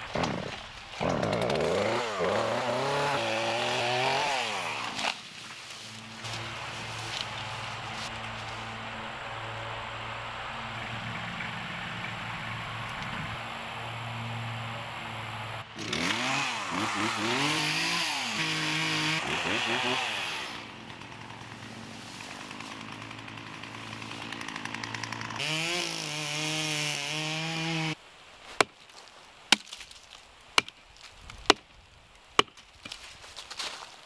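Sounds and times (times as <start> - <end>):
chainsaw revving: 0.1 - 5.2, 15.1 - 28.0
chopping tool striking soil and roots: 29.5 - 30.0, 32.4 - 33.0.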